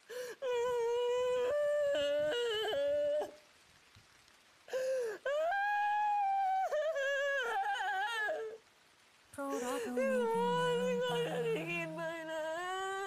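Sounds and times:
singer breathing: 0:04.7 - 0:05.2
person singing wordless vocalise: 0:09.4 - 0:13.0.

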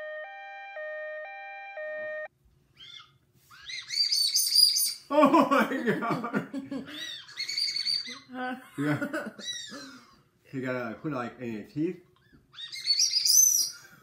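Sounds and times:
two-note electronic alarm tone: 0:00.0 - 0:02.3
shrill candy whistles: 0:02.8 - 0:05.1, 0:07.3 - 0:08.1, 0:12.6 - 0:13.9
people laughing: 0:05.1 - 0:07.1, 0:08.5 - 0:10.1.

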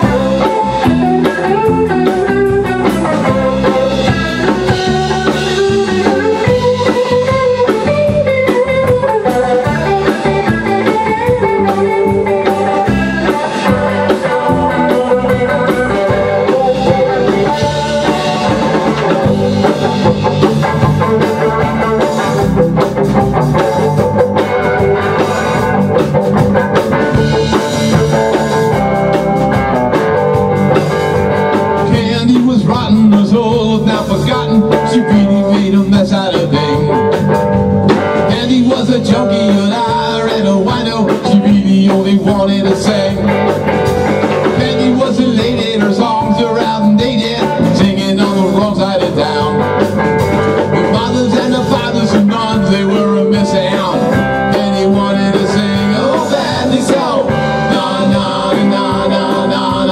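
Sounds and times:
drum kit: 0:00.0 - 0:59.9
electric bass: 0:00.0 - 0:59.9
electric guitar melody: 0:00.0 - 0:59.9.

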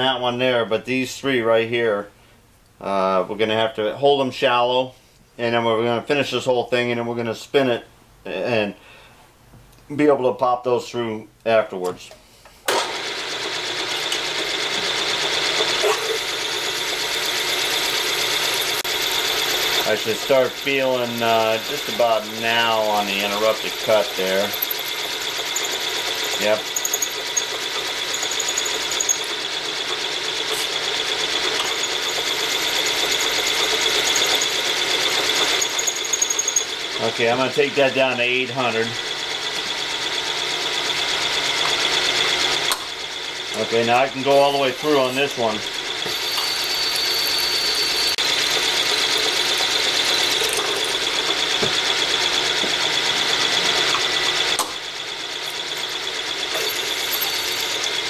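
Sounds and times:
drill rattling and whining: 0:12.7 - 0:58.0.

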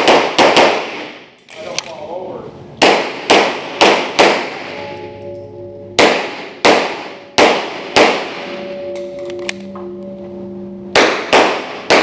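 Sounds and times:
pistol shots echoing indoors: 0:00.0 - 0:01.8, 0:02.8 - 0:10.0, 0:10.9 - 0:12.0
faint ringing tone: 0:04.7 - 0:06.0, 0:08.5 - 0:11.0.

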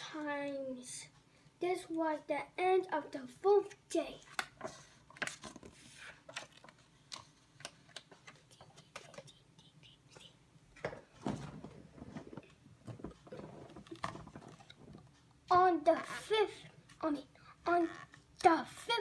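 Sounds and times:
book pages turning: 0:04.2 - 0:09.3, 0:11.2 - 0:15.2
paper rustling: 0:04.3 - 0:09.3.

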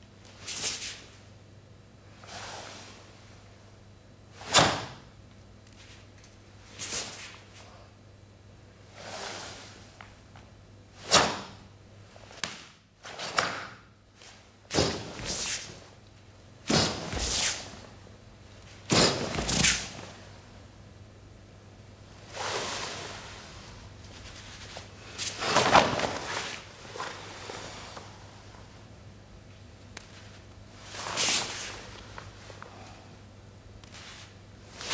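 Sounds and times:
karate uniform swishing and snapping: 0:00.3 - 0:01.0, 0:04.4 - 0:05.1, 0:05.7 - 0:07.6, 0:11.0 - 0:11.6, 0:12.2 - 0:16.0, 0:16.7 - 0:17.8, 0:18.6 - 0:20.1, 0:24.1 - 0:28.1, 0:30.0 - 0:32.3, 0:33.8 - 0:34.9.

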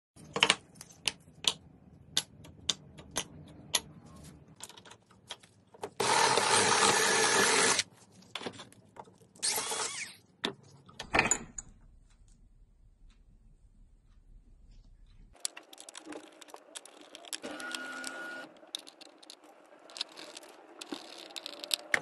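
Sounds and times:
drill press grinding through metal: 0:06.0 - 0:07.8.

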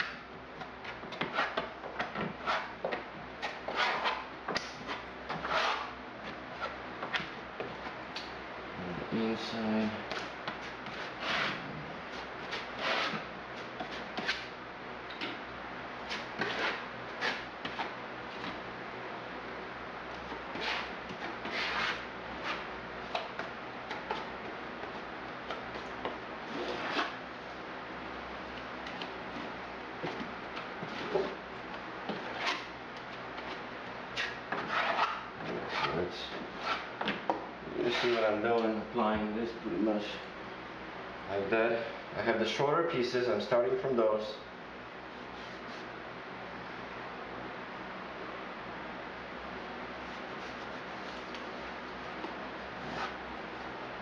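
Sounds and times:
putty knife scraping and spreading: 0:00.0 - 0:08.0, 0:10.1 - 0:14.5, 0:16.0 - 0:18.6, 0:20.2 - 0:24.3, 0:25.4 - 0:27.2, 0:28.8 - 0:31.4, 0:32.1 - 0:32.7, 0:33.4 - 0:37.2, 0:37.8 - 0:38.4, 0:52.8 - 0:53.2.

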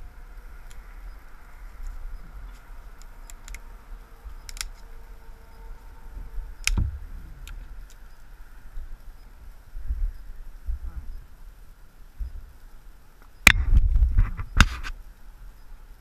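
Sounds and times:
twigs snapping: 0:01.7 - 0:03.7, 0:04.4 - 0:04.9, 0:06.6 - 0:08.0.

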